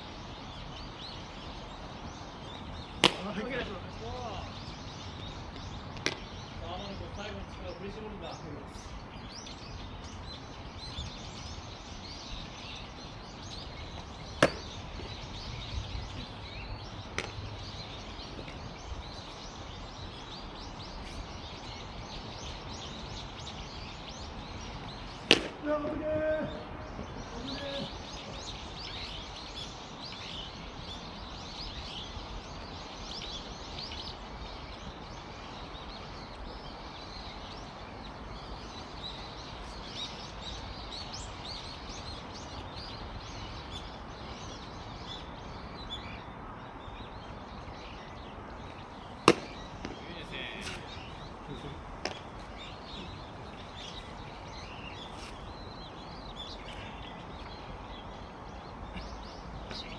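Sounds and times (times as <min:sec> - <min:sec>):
birds chirping: 0:00.0 - 0:59.9
steady outdoor noise: 0:00.0 - 0:59.9
ball popping into mitt: 0:03.0 - 0:03.3, 0:06.0 - 0:06.3, 0:14.4 - 0:15.1, 0:25.3 - 0:25.6, 0:49.2 - 0:50.0, 0:52.0 - 0:52.3
short shout: 0:25.6 - 0:26.7.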